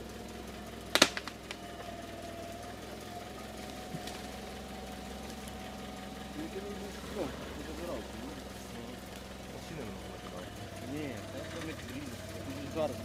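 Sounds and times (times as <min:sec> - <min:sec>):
engine idling: 0:00.0 - 0:13.0
sharp knock: 0:01.0 - 0:01.5.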